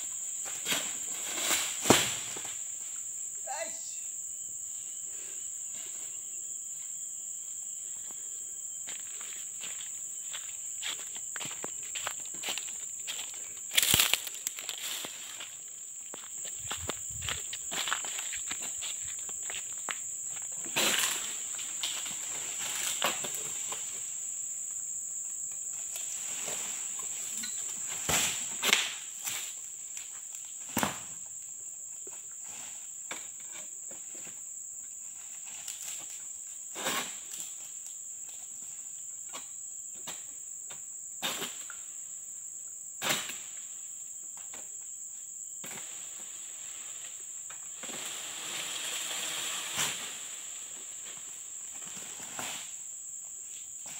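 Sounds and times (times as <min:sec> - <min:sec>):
high-pitched insect drone: 0:00.0 - 0:30.6.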